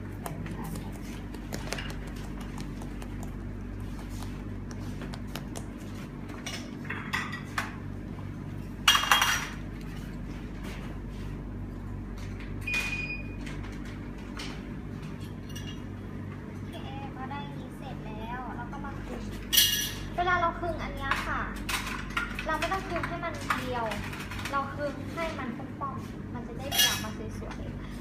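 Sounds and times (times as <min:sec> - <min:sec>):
steady low hum: 0:00.0 - 0:28.0
utensils clinking against dishes: 0:08.9 - 0:09.6, 0:15.3 - 0:15.9, 0:19.5 - 0:20.1, 0:26.6 - 0:27.6.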